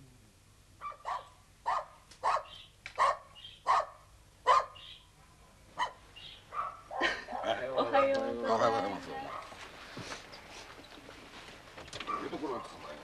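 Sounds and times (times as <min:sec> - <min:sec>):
dog barking: 0:00.8 - 0:04.8, 0:05.8 - 0:07.0, 0:09.2 - 0:09.6, 0:12.0 - 0:13.0.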